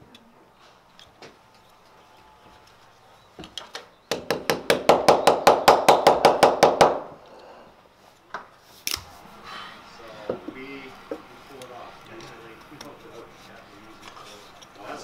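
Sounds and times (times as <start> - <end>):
hammer tapping wood: 4.1 - 7.0.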